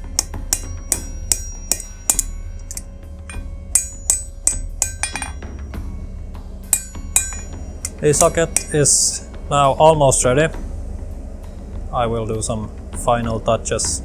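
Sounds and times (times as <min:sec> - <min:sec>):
hammer striking hot steel on anvil: 0:00.0 - 0:05.8, 0:06.6 - 0:09.3.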